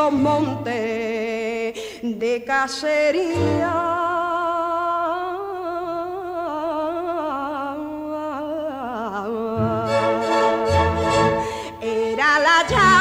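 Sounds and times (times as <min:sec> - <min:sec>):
person singing with vibrato: 0:00.0 - 0:13.0
orchestral accompaniment: 0:09.6 - 0:11.8.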